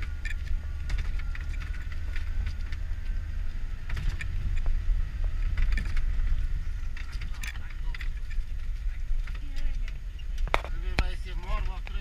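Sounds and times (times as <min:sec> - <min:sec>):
clicks and knocks over bumps: 0:00.0 - 0:03.2, 0:03.8 - 0:12.0
engine and road rumble: 0:00.0 - 0:12.0.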